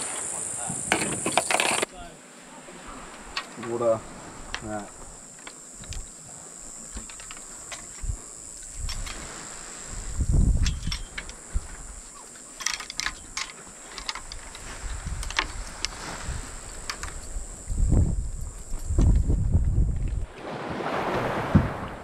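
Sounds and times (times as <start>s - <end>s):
high-pitched insect buzz: 0.0s - 20.1s
fishing reels clicking: 10.5s - 11.6s, 12.6s - 17.5s.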